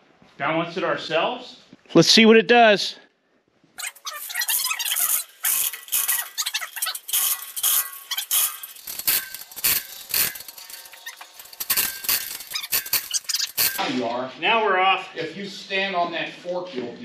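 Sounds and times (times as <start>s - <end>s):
chain hoist clicking and rattling: 3.8s - 13.8s.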